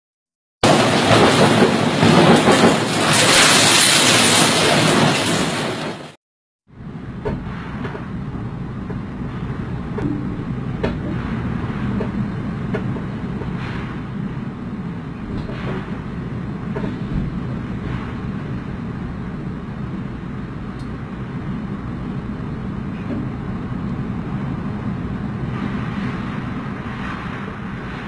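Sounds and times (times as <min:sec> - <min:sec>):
strong wind on microphone: 0:06.8 - 0:28.0.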